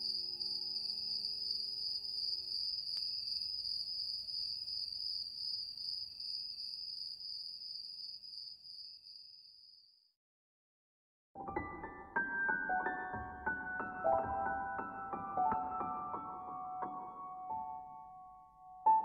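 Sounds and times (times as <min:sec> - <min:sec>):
crickets chirring: 0:00.0 - 0:10.0.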